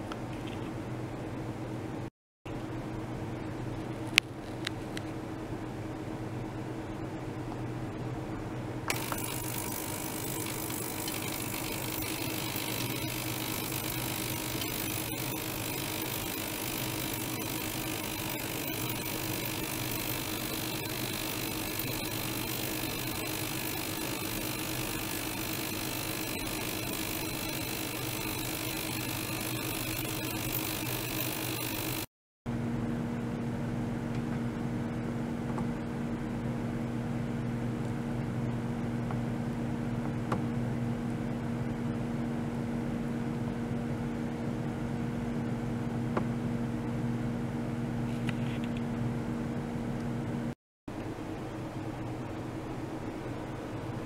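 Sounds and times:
pump hum: 8.8s - 42.6s.

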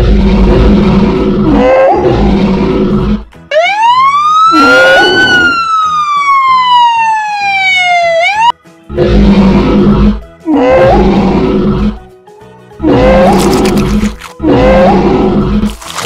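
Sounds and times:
low rumbling growl: 0.0s - 3.3s, 8.9s - 12.0s, 12.8s - 16.0s
siren wail: 3.5s - 8.6s.

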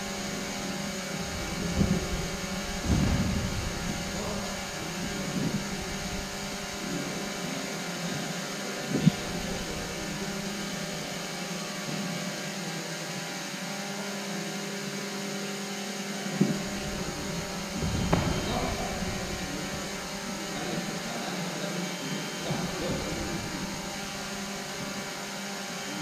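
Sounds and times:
low hum of sports hall: 0.0s - 15.0s, 16.1s - 26.0s
sharp dull knocks: 16.4s - 20.3s.

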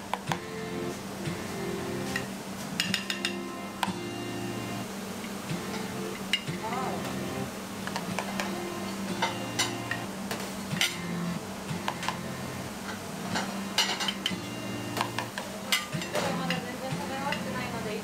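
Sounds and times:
metal spoon clinking on plates: 2.2s - 3.4s, 12.9s - 14.4s.

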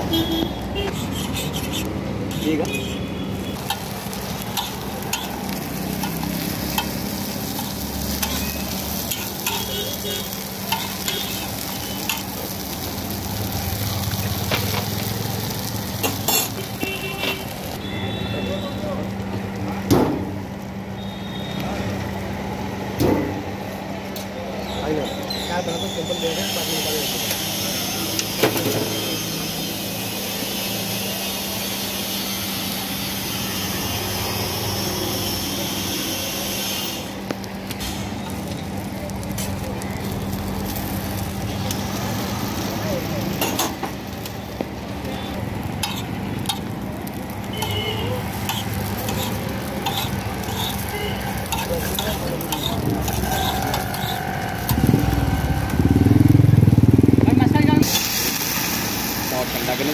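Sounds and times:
vehicle engine rumble: 0.0s - 24.7s, 37.0s - 58.5s
food frying on griddle: 0.0s - 59.9s
metal spatula scraping griddle: 4.5s - 10.0s, 15.9s - 16.7s, 45.8s - 46.7s, 47.5s - 55.7s.

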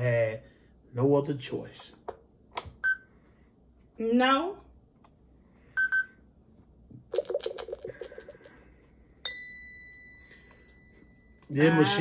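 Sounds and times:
short electronic beeps: 5.8s - 6.2s
ringing chime: 9.2s - 12.0s.

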